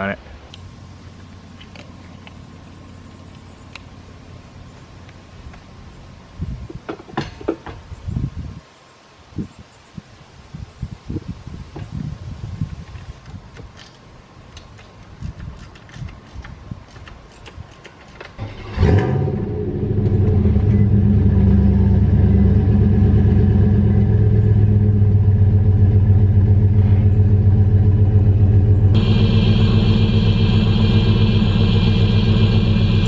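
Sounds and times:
vehicle engine starting and idling: 14.6s - 33.0s.

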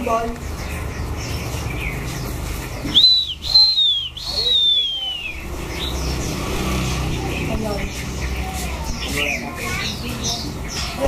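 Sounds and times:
faint bird chirps: 2.7s - 6.1s
songbird whistling clear notes: 2.9s - 5.5s.

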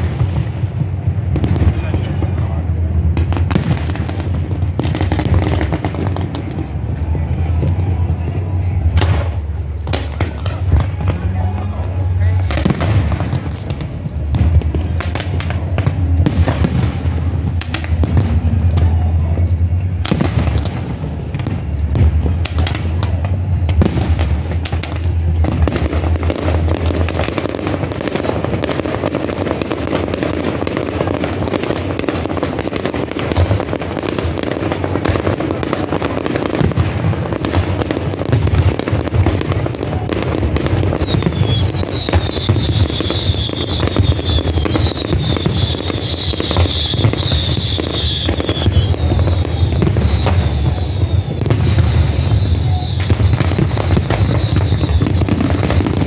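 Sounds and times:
fireworks fountains crackling: 0.0s - 56.0s
high wavering whistle: 41.0s - 55.3s.

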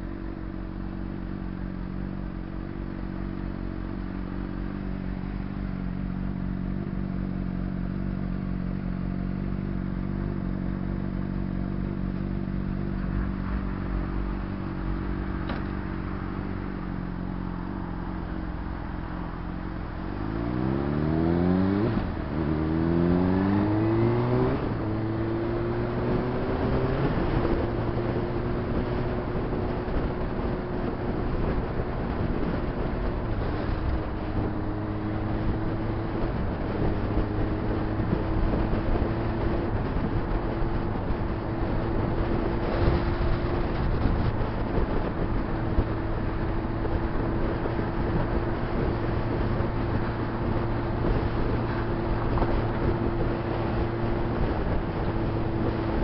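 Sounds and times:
motorcycle pulling away revving: 19.4s - 56.0s.

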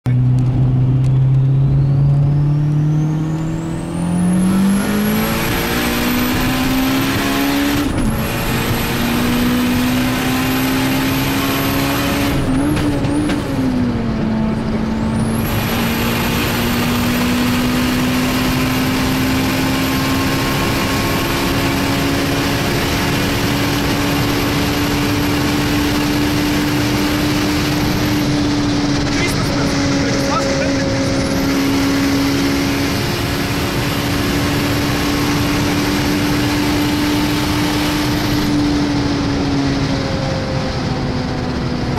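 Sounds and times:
car engine at full throttle: 0.0s - 41.9s.

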